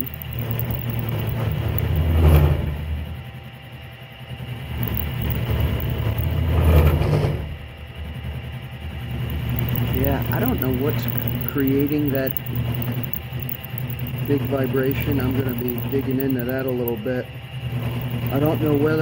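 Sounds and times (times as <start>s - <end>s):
milling machine cutting steel: 0.0s - 2.7s, 4.7s - 7.1s, 9.1s - 19.0s.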